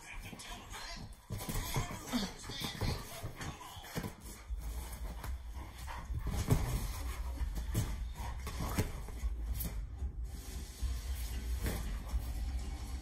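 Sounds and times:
paws thumping on rubber ball: 0.2 - 10.0.

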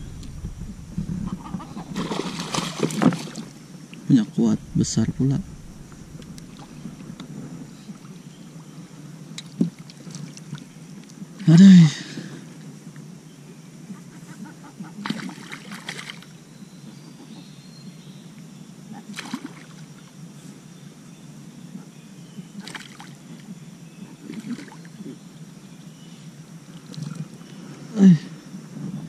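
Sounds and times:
water splashing against kayak: 0.0 - 3.6, 4.5 - 7.6
low water hiss: 0.0 - 29.0.

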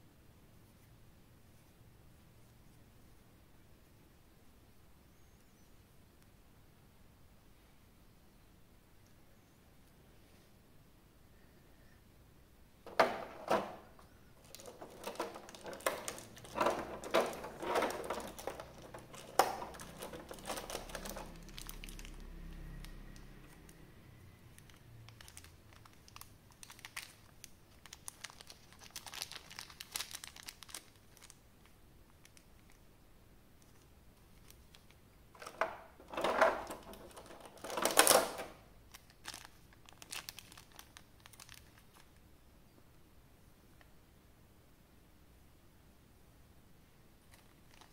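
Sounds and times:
packaging crinkling and rustling: 12.9 - 23.8, 24.5 - 32.8, 33.6 - 42.2, 47.2 - 47.9.

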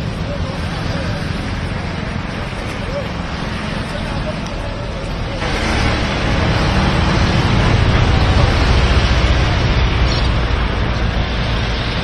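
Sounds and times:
churning water: 5.4 - 12.0.

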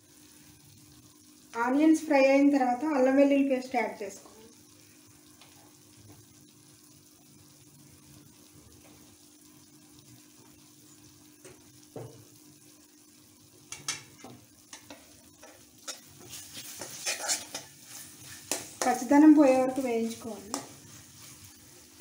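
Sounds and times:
onions frying in oil: 0.0 - 22.0
metal spatula scraping wok: 15.4 - 19.1.

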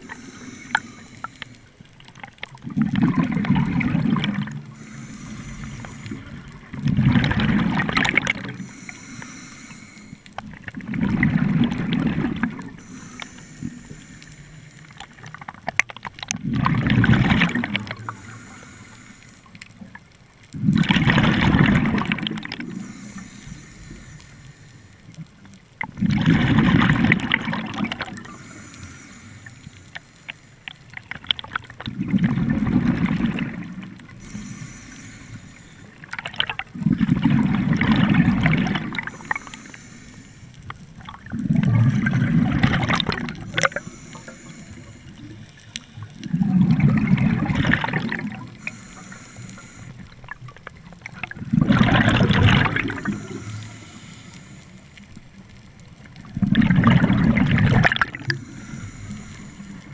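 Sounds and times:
regulator inhalation hiss: 0.0 - 1.8, 4.7 - 6.5, 8.6 - 10.3, 12.8 - 15.2, 18.0 - 19.6, 22.7 - 25.1, 28.2 - 30.7, 34.1 - 36.1, 39.0 - 40.6, 43.4 - 46.0, 48.5 - 50.1, 52.9 - 55.0, 58.3 - 59.9
bubbling exhalations underwater: 2.6 - 5.0, 6.2 - 8.8, 10.7 - 12.8, 16.3 - 18.1, 20.6 - 22.9, 25.9 - 28.4, 31.7 - 33.9, 36.1 - 39.5, 41.0 - 44.0, 46.2 - 48.7, 51.1 - 53.4, 56.2 - 58.4.

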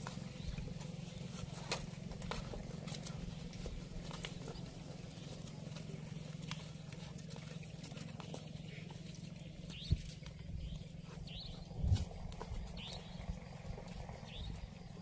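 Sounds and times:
hoof steps on dirt: 0.0 - 15.0
bird chirps: 8.4 - 15.0.

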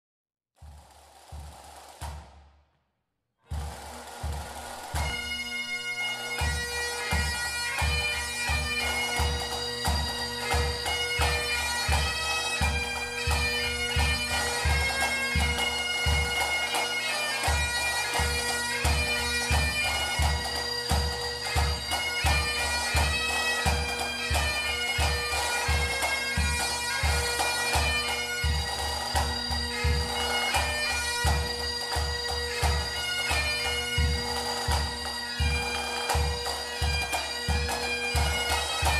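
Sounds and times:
bagpipes playing a tune: 3.6 - 38.9.

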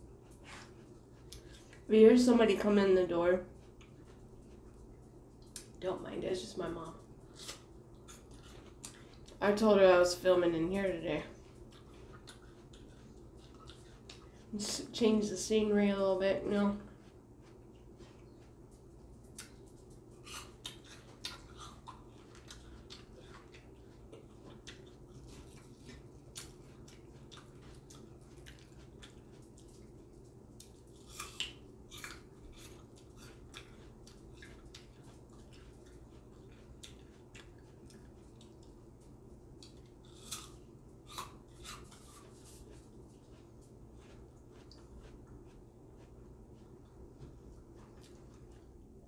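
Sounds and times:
faint steady hum: 0.0 - 49.0
biting and chewing bread: 6.8 - 9.8, 10.8 - 14.5, 16.9 - 49.0.

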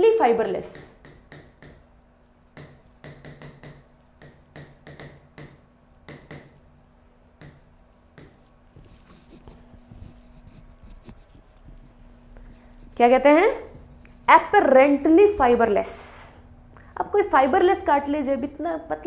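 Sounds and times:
chalk tapping and scratching: 0.0 - 15.2.

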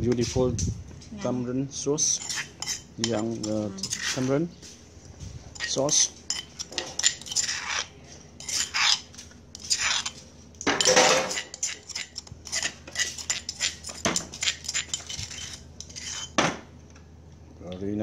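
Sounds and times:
metal spoon scraping stone mortar: 2.0 - 4.4, 5.4 - 16.4.

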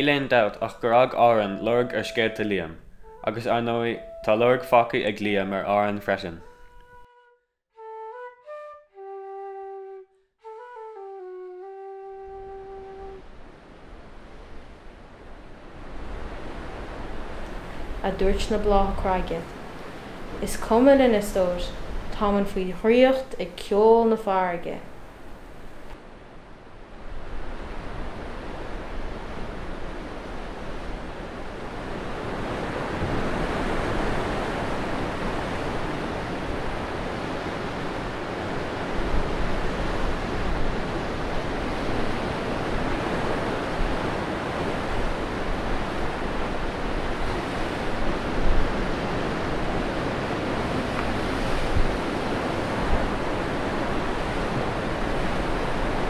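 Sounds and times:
sea waves breaking on rocks: 27.4 - 56.0.

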